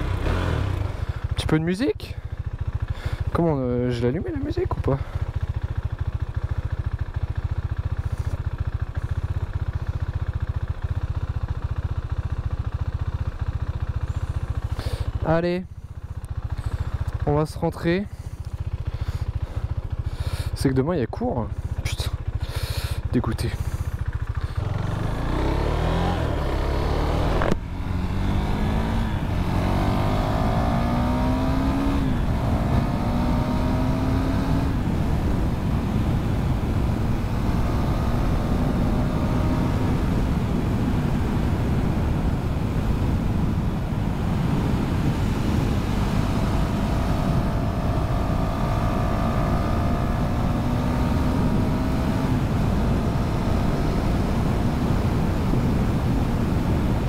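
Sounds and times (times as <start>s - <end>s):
motorcycle engine accelerating: 0.0s - 1.6s, 2.2s - 20.8s, 21.4s - 57.0s
wind noise: 28.2s - 57.0s.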